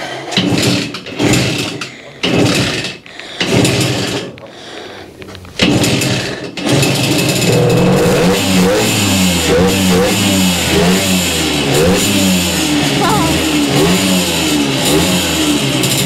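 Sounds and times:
moped engine kick-started: 0:05.6 - 0:07.8.

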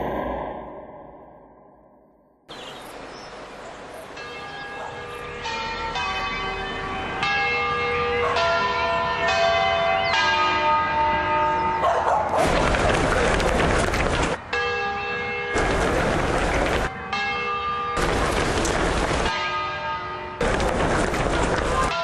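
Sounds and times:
church bells ringing: 0:04.0 - 0:12.2, 0:14.2 - 0:22.0.

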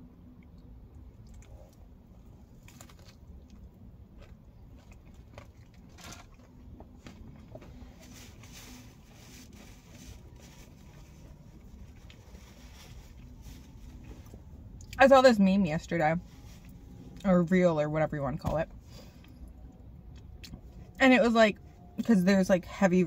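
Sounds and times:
crunching fried food: 0:00.6 - 0:07.8.

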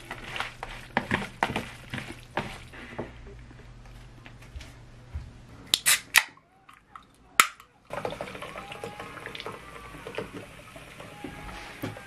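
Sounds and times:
cola pouring and fizzing: 0:07.9 - 0:11.2.

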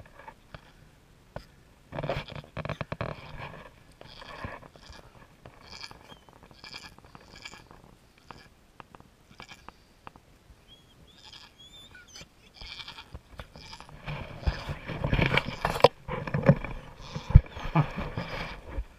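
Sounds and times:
goats bleating: 0:11.2 - 0:14.8, 0:16.9 - 0:18.4.

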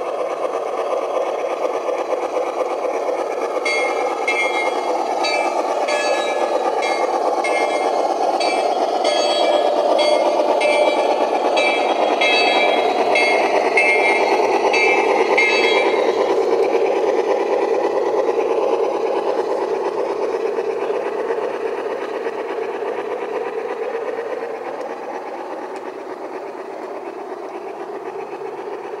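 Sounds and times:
model train rumbling on track: 0:00.0 - 0:29.0
high repeating squeak: 0:03.6 - 0:16.1.

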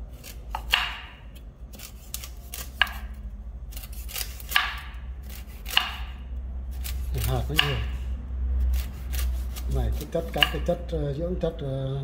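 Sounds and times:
knife chopping fruit: 0:00.1 - 0:10.8.

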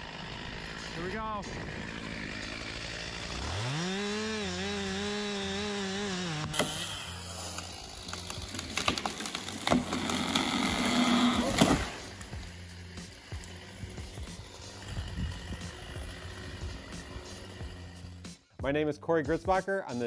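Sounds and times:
chainsaw revving: 0:00.0 - 0:18.4
wood cracking and snapping: 0:06.4 - 0:12.6.

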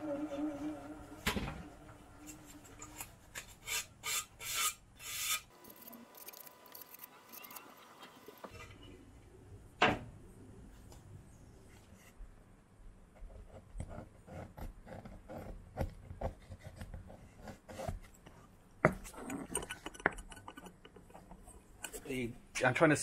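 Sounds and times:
low hum: 0:00.0 - 0:03.1.

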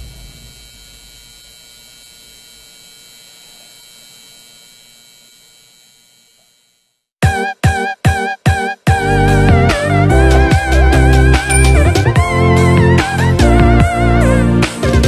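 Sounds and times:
steady electric hum: 0:00.0 - 0:07.0
music with loud repeated stabs: 0:07.2 - 0:15.0.

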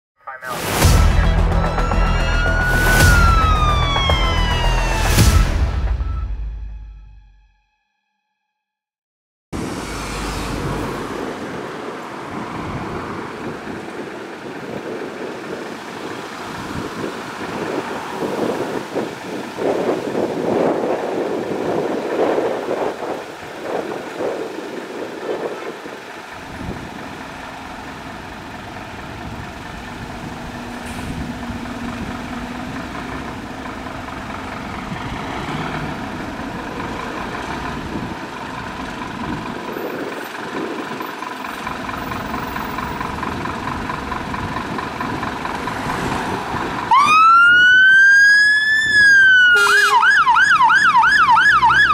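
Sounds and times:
passing road traffic: 0:00.4 - 0:05.9, 0:09.6 - 0:51.9
two-tone siren wailing: 0:01.2 - 0:06.7, 0:46.9 - 0:51.9
diesel engine idling: 0:10.2 - 0:47.6.

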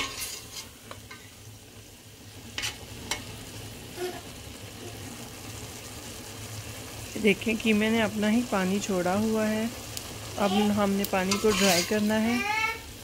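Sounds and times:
spoon stirring: 0:00.0 - 0:01.3, 0:11.3 - 0:12.1
meat sizzling in a pot: 0:00.0 - 0:13.0.

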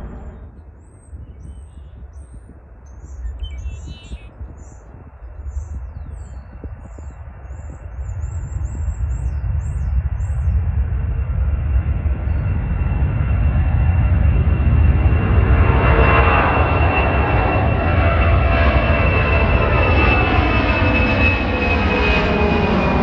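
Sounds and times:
jet engines rumbling: 0:00.0 - 0:23.0
small birds chirping: 0:00.4 - 0:10.6.

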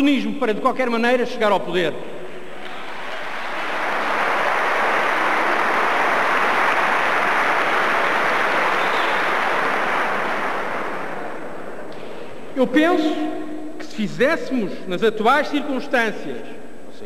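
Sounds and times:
audience applauding: 0:02.6 - 0:11.8.

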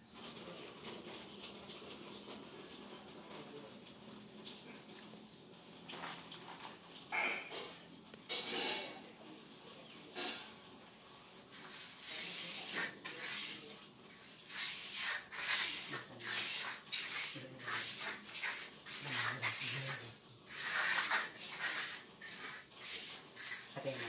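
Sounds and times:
trowel scraping wet cement: 0:11.6 - 0:24.0.

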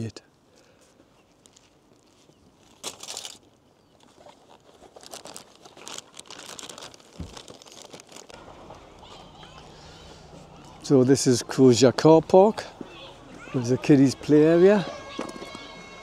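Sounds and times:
wrapping crinkling and rustling: 0:00.8 - 0:10.9.

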